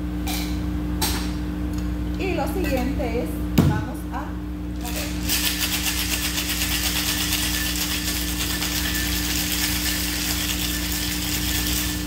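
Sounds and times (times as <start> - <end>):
ice rattling in cocktail shaker: 4.8 - 12.0.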